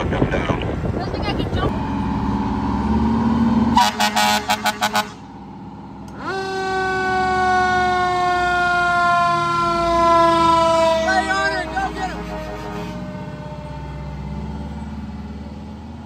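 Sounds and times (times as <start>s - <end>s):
fire engine siren wailing: 1.6s - 16.0s
short horn blasts: 3.7s - 5.3s, 11.4s - 13.1s.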